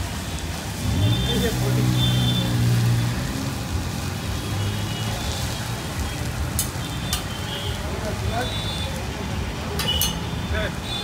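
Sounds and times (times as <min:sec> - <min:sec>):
noodles sizzling on griddle: 0:00.0 - 0:11.0
metal fork clinking on griddle: 0:09.8 - 0:10.2.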